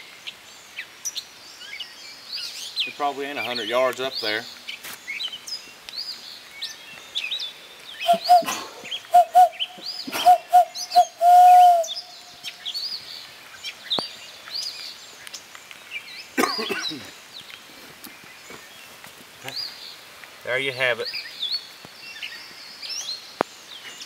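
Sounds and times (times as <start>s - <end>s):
songbirds chirping: 0.0s - 24.0s
hand-blown owl hoots: 8.0s - 12.2s.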